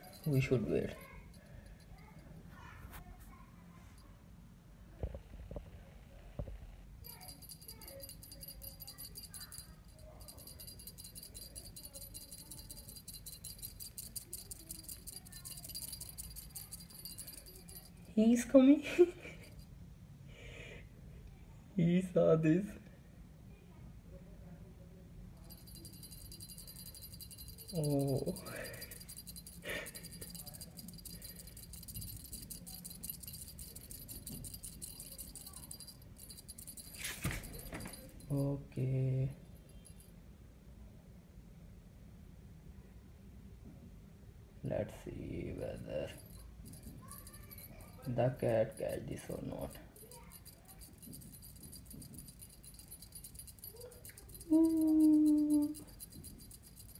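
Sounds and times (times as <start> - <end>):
cat toy jingling: 0.0 - 2.3, 7.0 - 19.6, 25.4 - 38.7, 39.4 - 40.1, 45.4 - 56.9.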